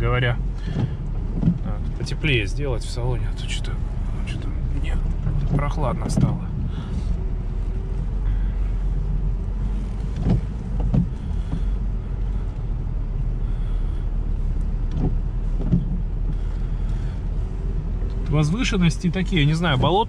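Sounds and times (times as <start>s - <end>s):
engine and road drone: 0.0s - 20.0s
short knocks: 10.0s - 11.7s.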